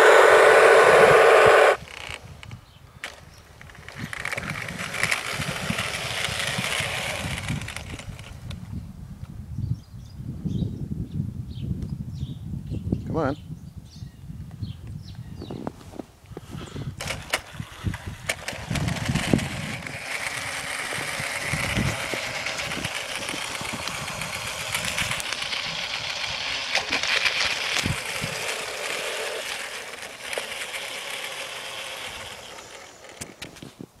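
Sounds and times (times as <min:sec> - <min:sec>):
model train motors whirring: 0:00.0 - 0:02.4, 0:03.0 - 0:08.6, 0:16.9 - 0:33.7.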